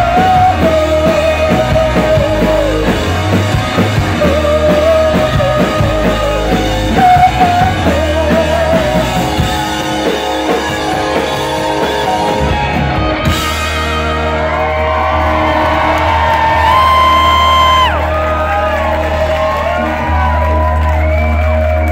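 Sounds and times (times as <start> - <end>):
person singing: 0.0 - 12.4
live rock band: 0.0 - 21.9.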